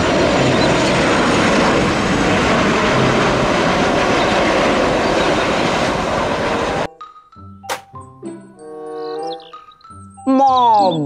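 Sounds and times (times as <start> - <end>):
jet engines roaring on landing: 0.0 - 6.9.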